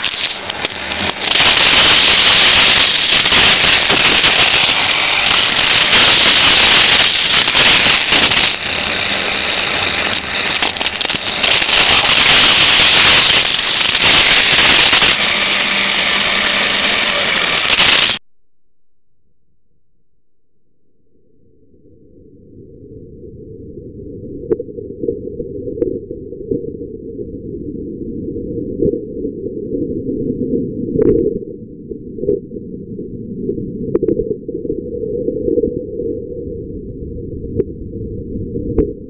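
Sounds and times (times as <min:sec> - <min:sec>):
toy car rattling on plastic track: 0:00.0 - 0:18.2.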